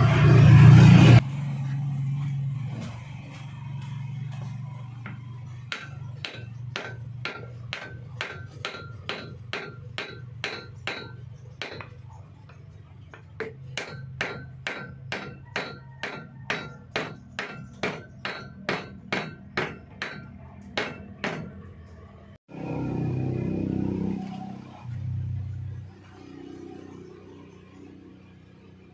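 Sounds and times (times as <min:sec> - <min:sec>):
hammer striking wooden block: 0:05.2 - 0:21.6.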